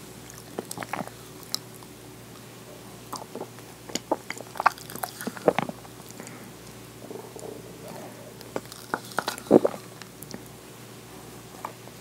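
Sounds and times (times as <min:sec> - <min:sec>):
wet mouth eating sounds: 0:00.2 - 0:02.0, 0:03.0 - 0:10.5.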